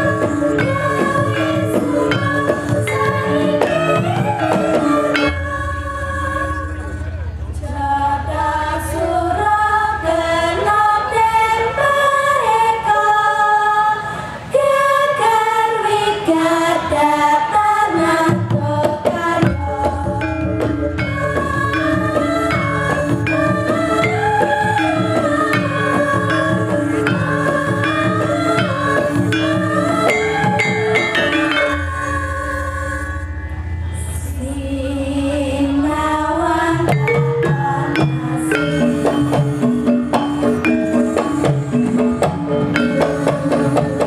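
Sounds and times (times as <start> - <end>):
hand drums: 0.0 - 5.6, 18.2 - 32.1, 36.8 - 44.0
women singing together: 0.0 - 6.9, 7.6 - 33.4, 34.2 - 44.0
gong: 0.0 - 7.4, 19.4 - 35.9, 36.7 - 44.0
metallophones struck with mallets: 0.0 - 7.4, 18.3 - 33.9, 35.7 - 44.0.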